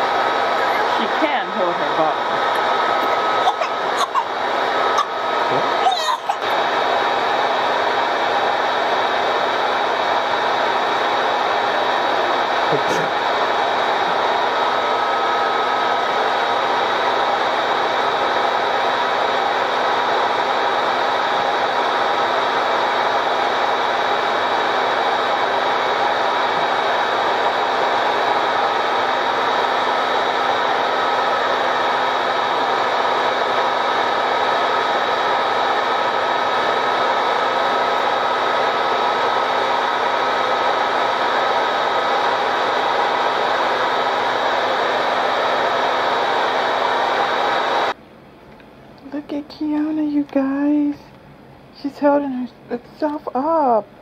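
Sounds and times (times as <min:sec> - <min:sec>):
constant hum: 0:00.0 - 0:08.2
machine whirring: 0:00.0 - 0:48.0.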